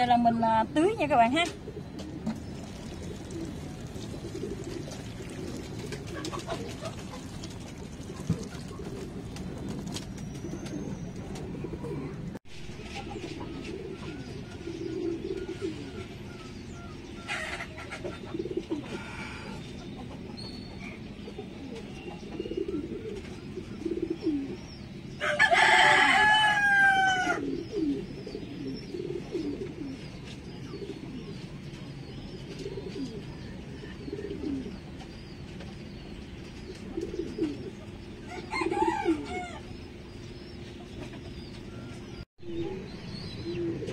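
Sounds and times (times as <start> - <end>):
pigeons cooing: 0.9 - 43.9
rooster crowing: 25.2 - 27.5, 38.2 - 39.8.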